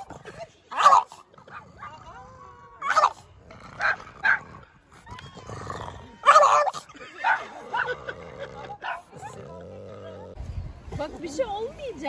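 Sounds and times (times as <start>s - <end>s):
dog barking: 0.8s - 1.6s.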